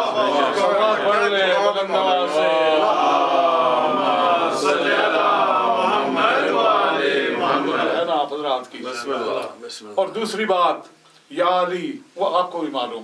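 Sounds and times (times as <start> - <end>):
congregation chanting in unison: 0.0 - 8.3.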